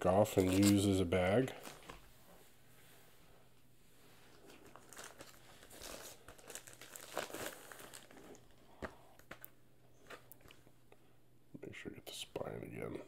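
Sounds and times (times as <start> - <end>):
plastic wrap crinkling: 0.0 - 2.1, 4.3 - 10.6.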